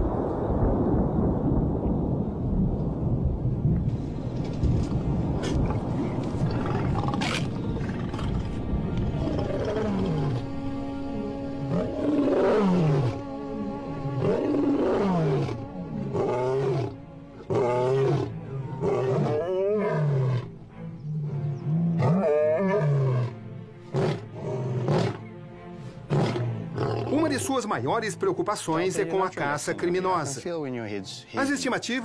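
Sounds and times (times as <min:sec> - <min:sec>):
background music: 0:03.9 - 0:32.0
lion roaring: 0:05.4 - 0:10.6, 0:11.2 - 0:25.2, 0:26.0 - 0:27.5.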